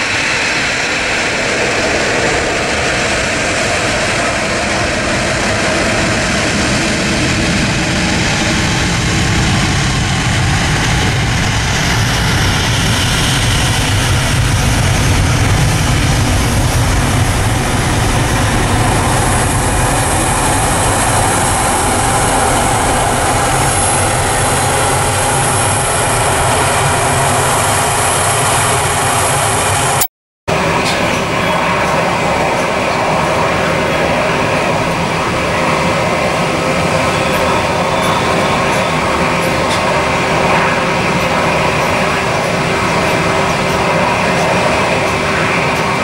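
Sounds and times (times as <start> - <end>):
jet engine whine: 0.0 - 46.0
jet engines rumbling: 0.0 - 46.0.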